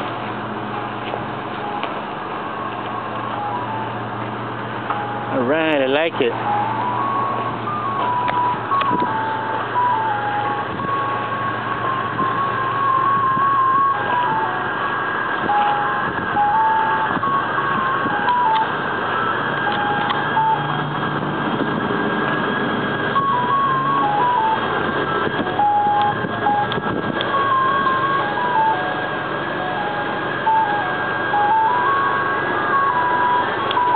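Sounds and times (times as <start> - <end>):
constant hum: 0.0 - 33.9
steady high tone: 0.2 - 33.9
music box jingle: 4.9 - 14.8, 15.4 - 20.8, 23.2 - 33.9.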